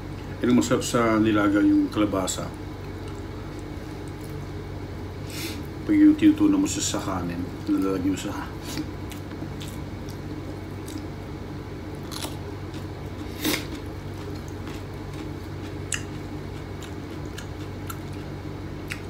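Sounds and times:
steady low hum: 0:00.0 - 0:19.0
person chewing: 0:08.6 - 0:11.2, 0:11.9 - 0:19.0.

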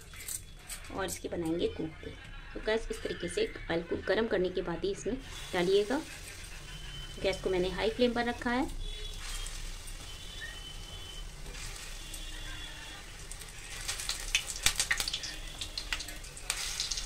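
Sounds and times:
batter frying in hot oil: 0:05.2 - 0:17.0.

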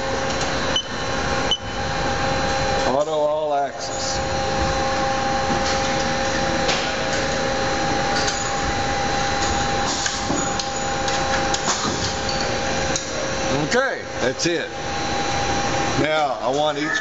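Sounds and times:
mechanical running noise: 0:00.0 - 0:17.0
servo whine: 0:14.9 - 0:17.0.

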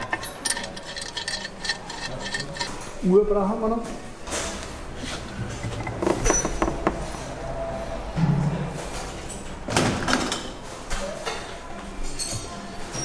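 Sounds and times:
metal clicks and knocks: 0:00.0 - 0:02.8.

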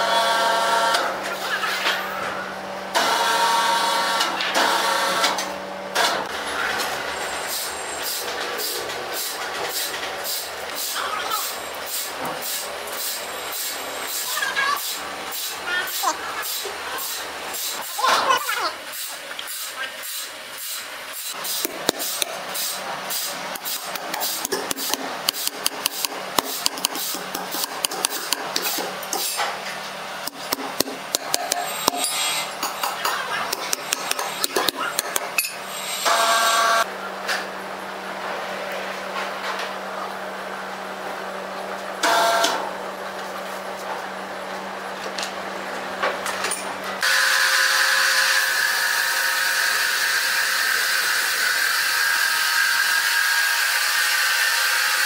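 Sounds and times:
sawmill machinery humming: 0:02.5 - 0:37.0, 0:47.0 - 0:55.0
hammer striking steel rods: 0:23.6 - 0:29.4, 0:30.3 - 0:35.6.

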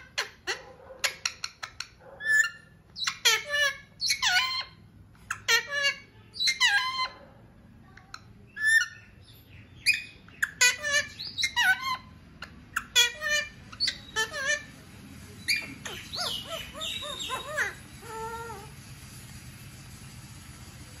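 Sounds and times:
parakeet squawks and chirps: 0:00.0 - 0:07.4, 0:08.0 - 0:19.2.

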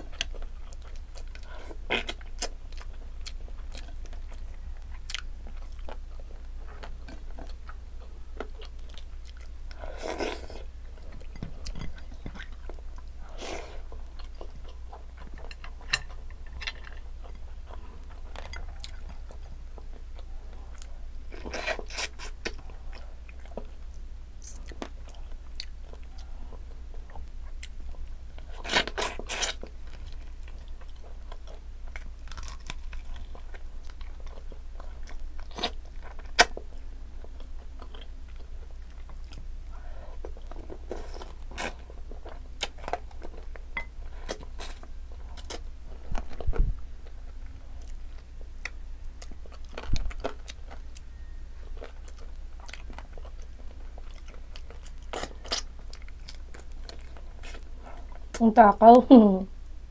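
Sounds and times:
chewing and smacking: 0:00.0 - 0:58.4
faint low hum: 0:00.0 - 0:59.9.

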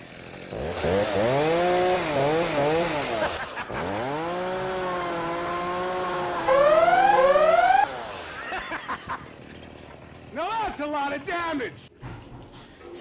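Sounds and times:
chainsaw revving: 0:00.0 - 0:10.4.

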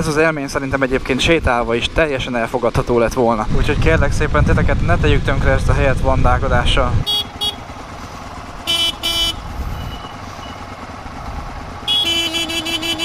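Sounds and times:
motorcycle engines idling: 0:00.0 - 0:13.0
motorcycle horns beeping: 0:07.0 - 0:07.9, 0:08.5 - 0:10.6, 0:11.8 - 0:13.0.

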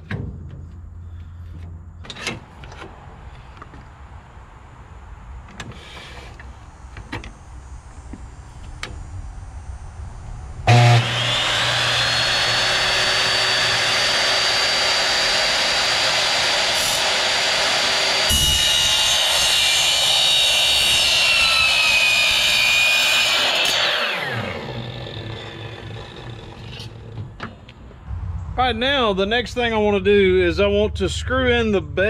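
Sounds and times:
miter saw motor whine: 0:05.8 - 0:27.7
saw blade cutting metal: 0:10.7 - 0:27.2
saw starting thump: 0:10.7 - 0:27.7.

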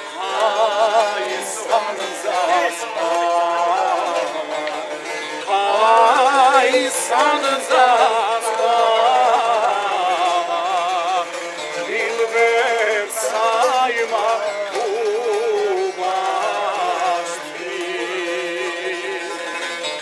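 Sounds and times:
plucked lutes: 0:00.0 - 0:20.0
voices singing folk song: 0:00.0 - 0:20.0.

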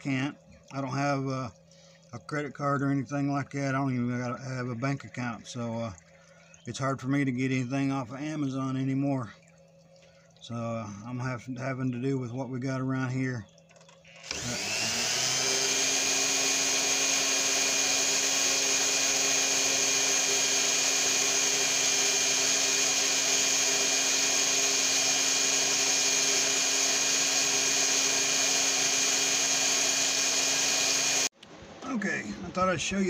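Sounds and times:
rotary tool high whine: 0:13.8 - 0:31.3.

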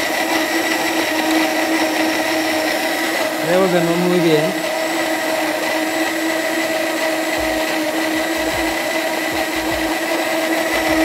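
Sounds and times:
blender motor whining: 0:00.0 - 0:11.0
dull low thumps: 0:07.4 - 0:07.6, 0:08.2 - 0:09.9.

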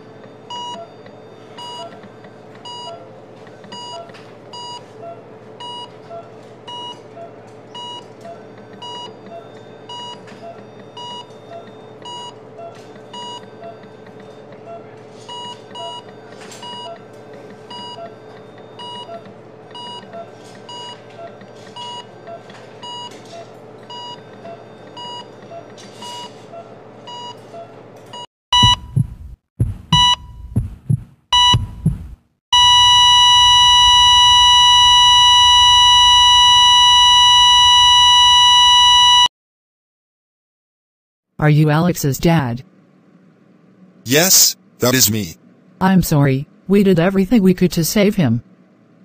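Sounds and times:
heart monitor beeping: 0:00.5 - 0:02.0, 0:28.6 - 0:39.3
continuous flatline tone: 0:32.6 - 0:39.3.

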